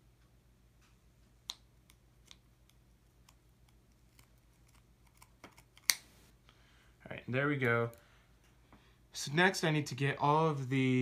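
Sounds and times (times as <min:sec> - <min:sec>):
scissors snipping cable: 0:01.5 - 0:06.0.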